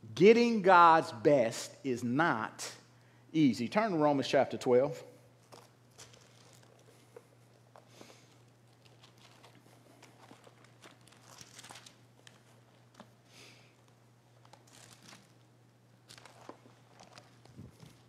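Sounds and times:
low steady hum: 0.0s - 18.0s
book pages being turned: 5.4s - 13.2s, 13.8s - 18.0s.

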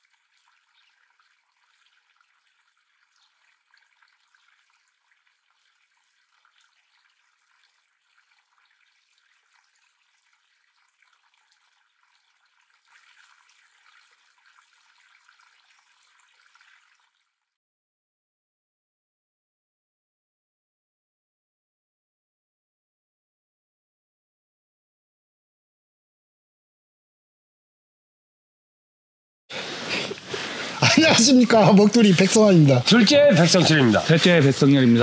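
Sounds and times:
stream trickling: 0.0s - 17.6s, 29.5s - 35.0s.

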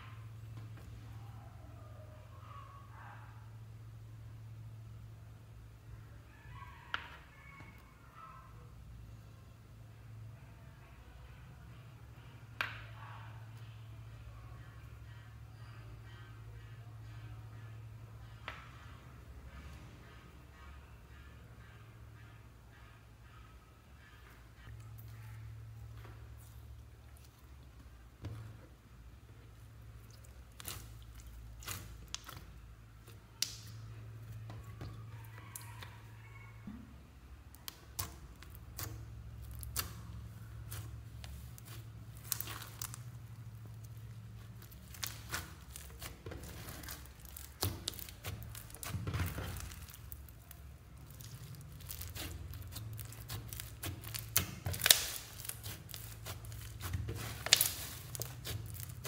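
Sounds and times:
squishing bead slime: 24.6s - 36.3s, 37.4s - 59.0s.

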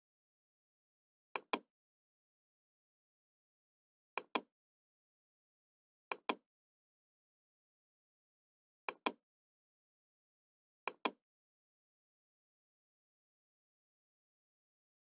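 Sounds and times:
computer mouse button clicking: 6.1s - 6.4s, 10.9s - 11.2s.

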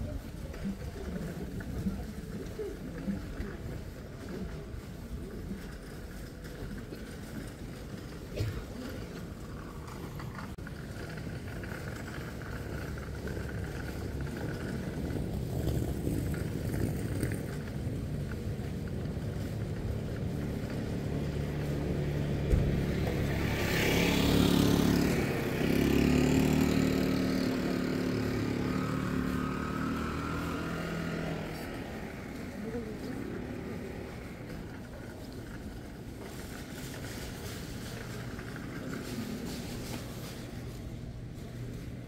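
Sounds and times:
traffic rumble: 0.0s - 42.0s
motor vehicle passing close: 19.4s - 35.3s.

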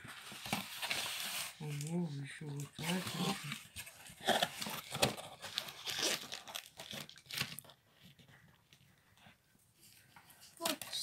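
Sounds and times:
cardboard and plastic tearing: 0.2s - 2.0s, 2.6s - 7.8s.

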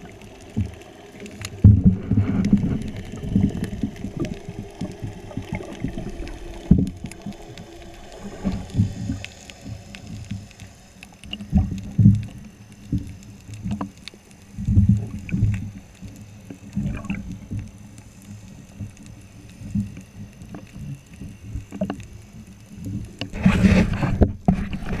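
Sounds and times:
splashing and bubbles: 0.0s - 14.0s, 14.6s - 19.0s.

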